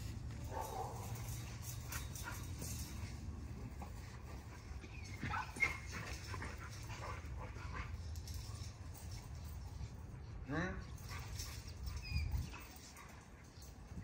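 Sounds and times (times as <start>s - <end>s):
dog yelping and whining: 4.8s - 6.3s, 11.6s - 12.9s.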